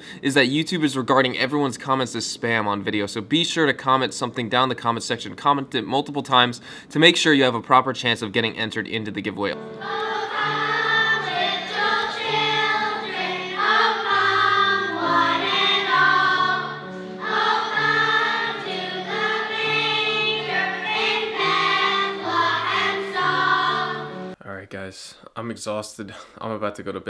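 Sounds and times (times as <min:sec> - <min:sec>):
low accompanying notes: 0:08.2 - 0:24.4
children's choir singing: 0:09.6 - 0:24.4.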